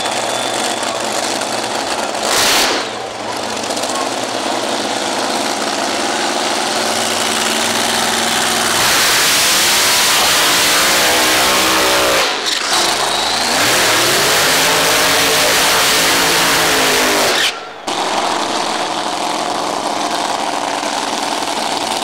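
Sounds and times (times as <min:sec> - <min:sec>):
engine revving: 0:00.0 - 0:20.4
dragster engine roaring: 0:00.0 - 0:22.0.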